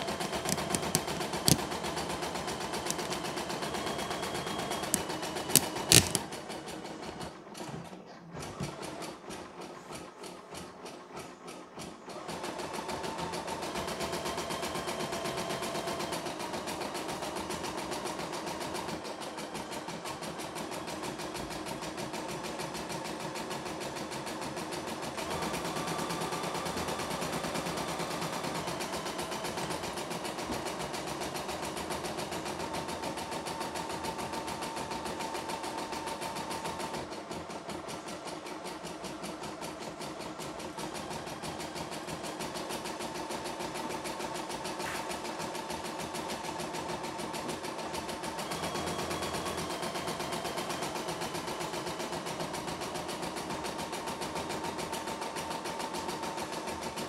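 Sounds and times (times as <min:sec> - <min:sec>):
embroidery machine stitching: 0:00.0 - 0:07.6.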